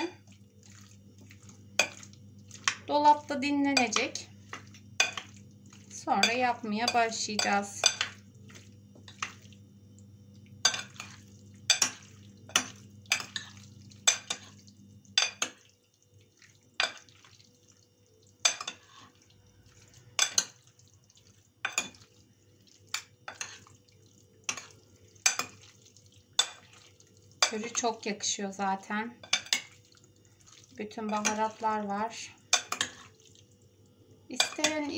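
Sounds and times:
wet stirring: 0.0 - 34.9
spoons clinking on glass dish: 1.8 - 2.8, 3.7 - 5.4, 6.2 - 8.2, 10.6 - 14.6, 15.2 - 15.6, 18.4 - 19.1, 20.2 - 20.6, 21.6 - 22.1, 22.9 - 23.6, 24.5 - 25.7, 29.2 - 29.8, 32.5 - 33.1, 34.4 - 34.9.

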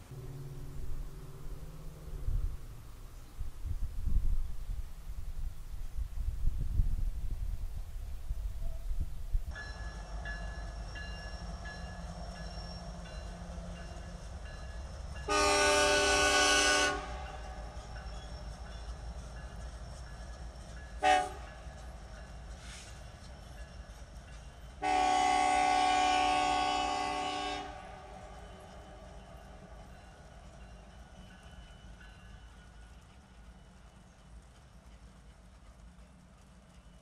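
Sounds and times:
low rumble: 0.0 - 5.0
locomotive air horn: 15.3 - 17.6, 21.0 - 21.6, 24.8 - 29.0.

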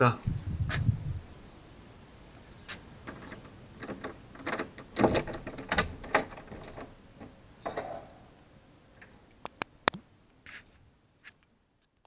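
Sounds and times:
doorknob turning scrape: 2.7 - 8.1
key turning in lock: 3.0 - 7.9.

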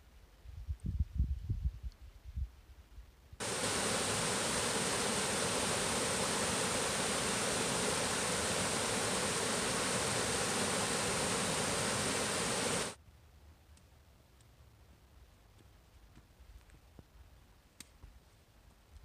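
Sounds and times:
stream rushing over rocks: 3.4 - 13.0.

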